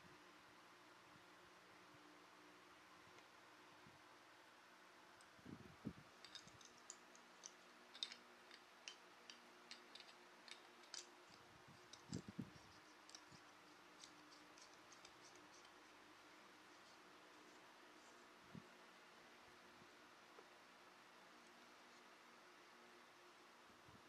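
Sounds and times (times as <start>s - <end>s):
plastic and cardboard clicks: 6.2s - 12.3s.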